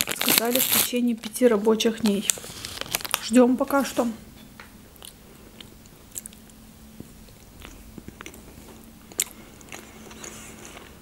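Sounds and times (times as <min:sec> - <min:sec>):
faint low hum: 0:00.0 - 0:11.0
chewing with mouth clicks: 0:05.0 - 0:11.0.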